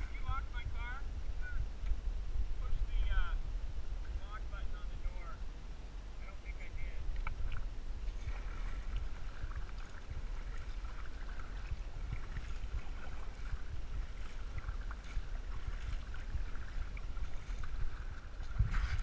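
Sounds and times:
wind rumble on microphone: 0:00.0 - 0:19.0
water moving along hull: 0:02.5 - 0:19.0
paddle blades dipping in water: 0:07.1 - 0:19.0.

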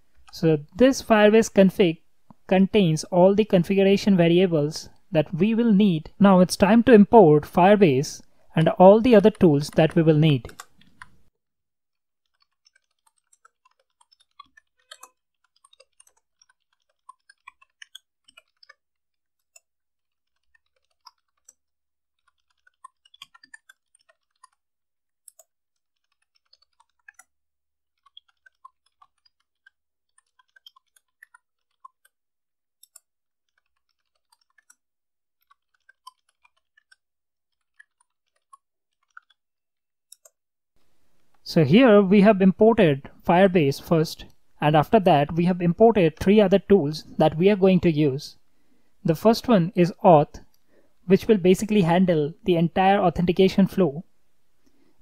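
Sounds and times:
typing on a computer keyboard: 0:09.2 - 0:11.2, 0:12.2 - 0:24.6, 0:25.2 - 0:27.3, 0:28.0 - 0:32.2, 0:32.8 - 0:34.8, 0:35.4 - 0:39.4.

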